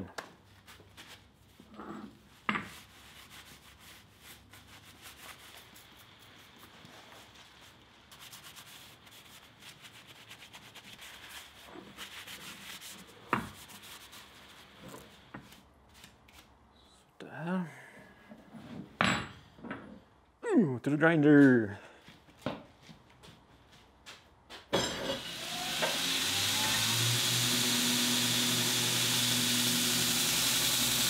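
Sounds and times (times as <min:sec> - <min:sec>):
cloth rag scrubbing metal: 0:02.3 - 0:15.2.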